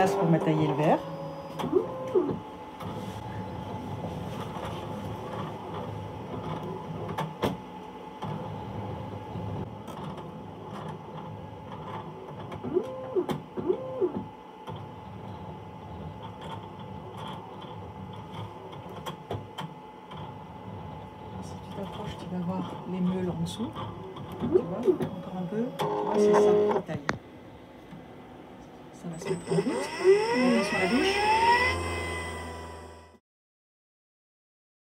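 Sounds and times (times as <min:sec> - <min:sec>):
machine mechanical hum: 0:00.0 - 0:33.2
motor whines: 0:29.1 - 0:33.2.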